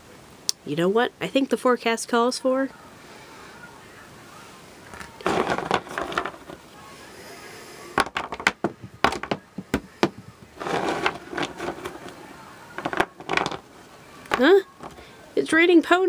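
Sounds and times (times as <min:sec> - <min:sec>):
scuffling handling noise: 0:04.8 - 0:06.7, 0:08.0 - 0:15.1
plastic figurines clicking on wood: 0:12.8 - 0:13.6.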